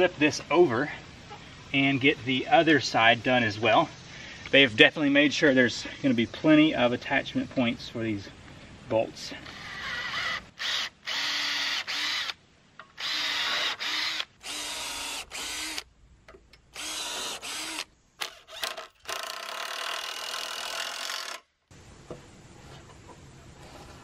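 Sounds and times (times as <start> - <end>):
faint outdoor background: 0.0 - 24.0
cordless drill boring wood: 9.5 - 12.4, 13.0 - 15.8, 16.8 - 21.4.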